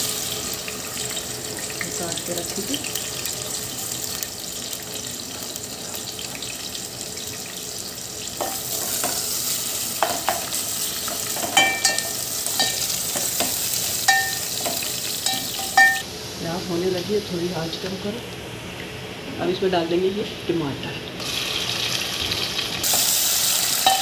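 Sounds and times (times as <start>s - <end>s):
onions sizzling in hot oil: 0.0s - 16.1s, 21.2s - 24.0s
spoon knocking against pot: 10.0s - 10.5s, 11.4s - 16.0s.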